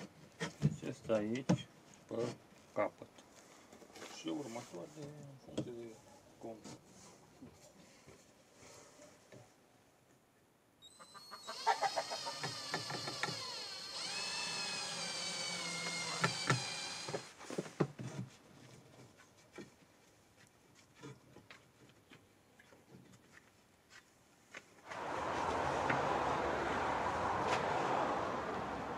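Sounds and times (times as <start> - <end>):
cordless drill motor whining: 11.8 - 17.4.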